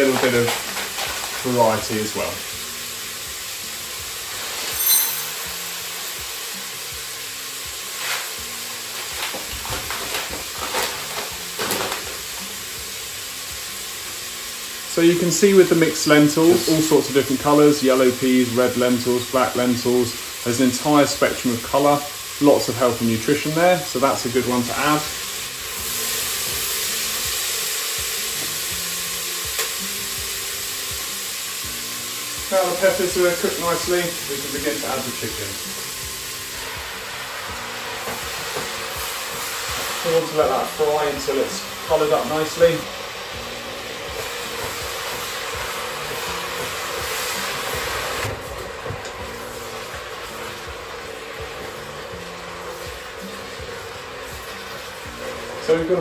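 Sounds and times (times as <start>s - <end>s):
lentils rattling into cups: 0.0s - 2.1s
peppers sizzling in oil: 0.0s - 56.0s
metal cups clinking: 4.7s - 5.5s.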